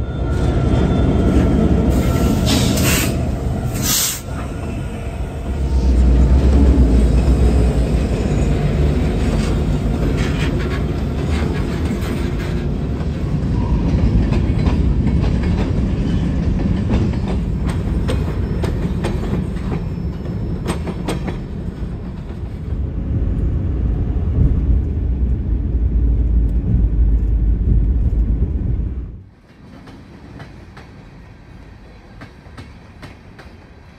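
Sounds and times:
freight train rumbling past: 0.0 - 33.9
steel wheels clacking on rails: 6.0 - 22.8, 31.9 - 33.8.

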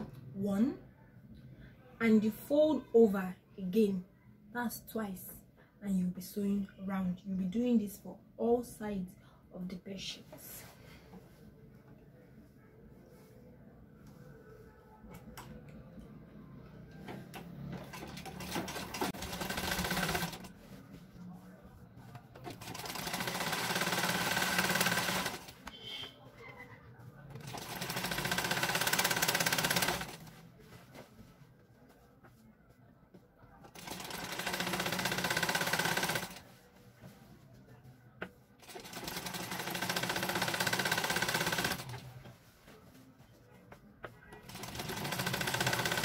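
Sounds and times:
sewing machine stitching: 17.1 - 20.5, 22.4 - 25.8, 27.4 - 30.3, 33.7 - 36.4, 38.6 - 42.0, 44.4 - 46.0.

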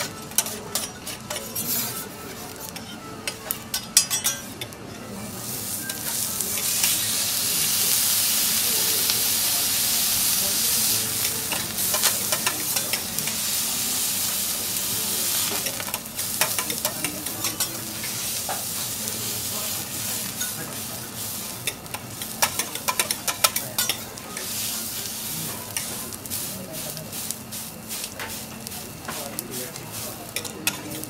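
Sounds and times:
spatula and fork scraping griddle: 0.0 - 3.0
food sizzling on griddle: 0.0 - 31.0.

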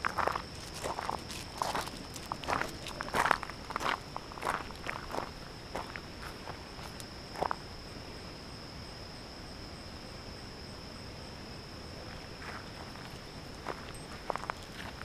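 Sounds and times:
footsteps crunching on gravel: 0.0 - 7.6, 12.4 - 15.0
insects singing: 0.0 - 15.0.

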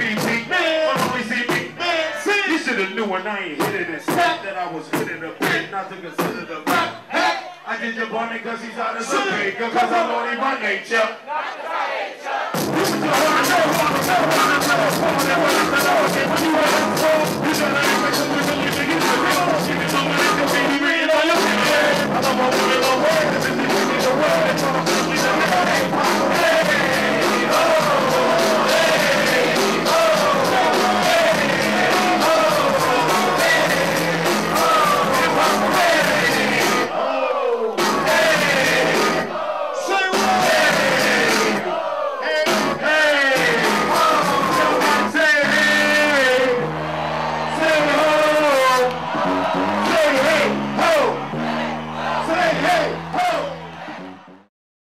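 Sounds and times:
pounding hip hop beat: 0.0 - 7.6, 12.4 - 54.5
rapping into microphones: 0.0 - 11.2, 12.5 - 37.0, 37.7 - 46.8, 47.5 - 51.4, 52.1 - 53.6
crowd shouting: 11.2 - 54.5.

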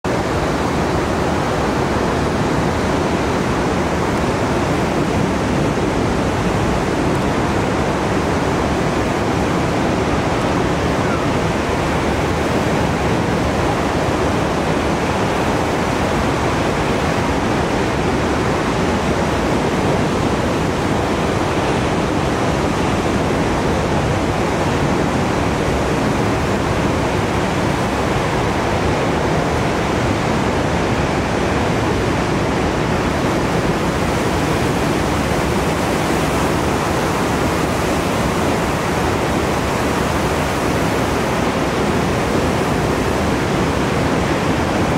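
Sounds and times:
ocean surf rushing: 0.0 - 44.9.

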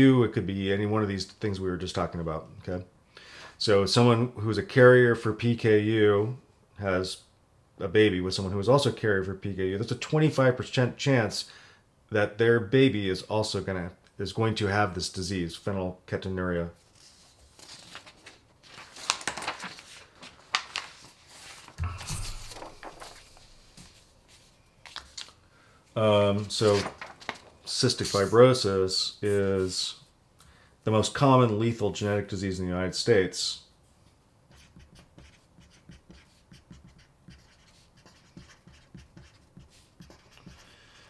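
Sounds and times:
paper rustling and sliding: 16.8 - 25.4, 26.3 - 28.6
marker scratching on paper: 34.5 - 40.7.

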